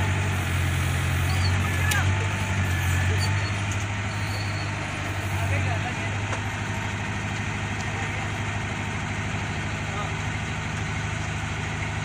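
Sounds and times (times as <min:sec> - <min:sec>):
diesel engine idling: 0:00.0 - 0:12.0.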